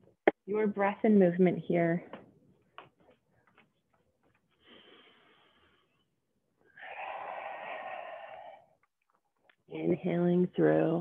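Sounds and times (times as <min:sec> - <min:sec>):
person breathing: 0:04.5 - 0:08.8.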